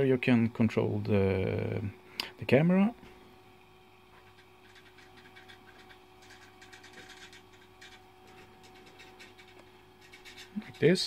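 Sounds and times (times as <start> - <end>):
faint electrical hum: 0.0 - 11.0
light scattered ticks: 4.2 - 11.0.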